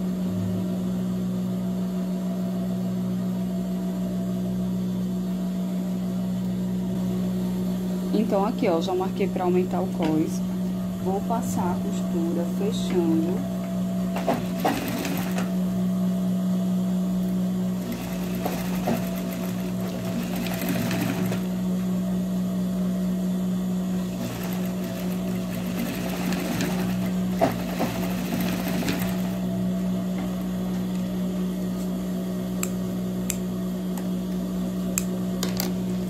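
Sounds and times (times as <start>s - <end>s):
sewing machine motor humming: 11.0s - 15.7s, 17.2s - 21.8s, 23.9s - 31.1s
sewing machine sewing: 14.1s - 15.5s, 17.7s - 21.6s, 24.0s - 29.4s.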